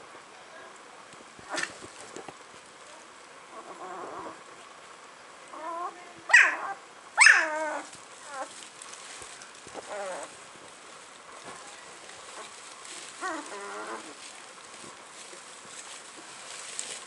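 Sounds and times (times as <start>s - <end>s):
puppies whining and crying: 5.6s - 8.6s, 9.8s - 10.4s, 13.2s - 14.2s.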